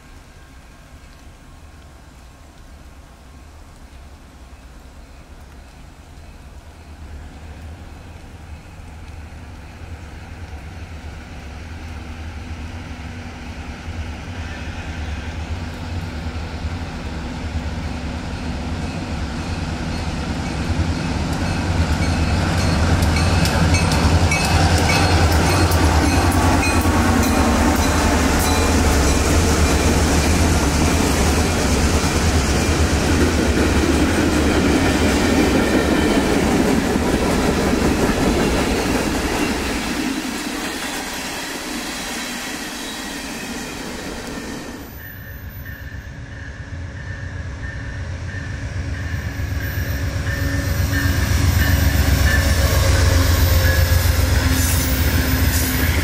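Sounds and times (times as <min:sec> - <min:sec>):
diesel locomotive engine rumble: 0:00.0 - 0:56.0.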